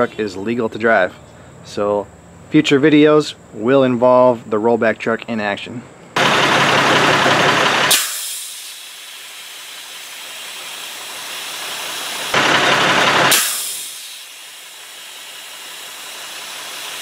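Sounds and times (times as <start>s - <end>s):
air brake dryer purging blasts: 6.2s - 17.0s.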